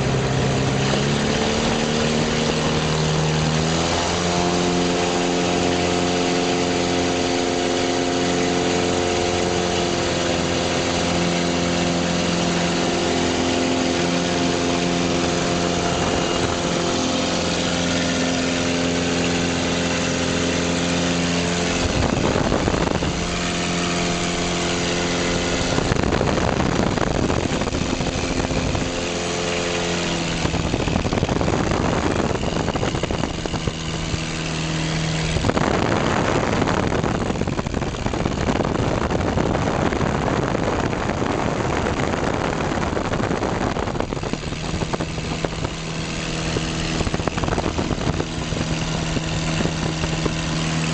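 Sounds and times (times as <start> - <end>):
aircraft engine and propeller: 0.0 - 50.9
rushing air noise: 10.0 - 50.9.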